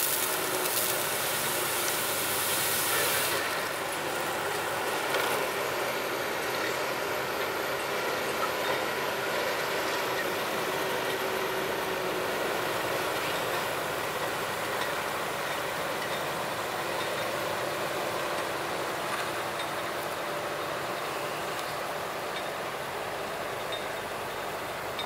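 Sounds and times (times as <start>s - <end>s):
excavator engine and hydraulics: 0.0s - 25.0s.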